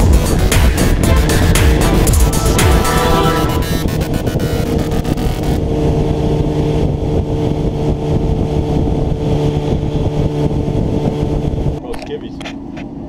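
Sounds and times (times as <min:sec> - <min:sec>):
music: 0:00.0 - 0:05.6
motorcycle engine running: 0:00.0 - 0:11.8
wind and road noise: 0:00.0 - 0:13.0.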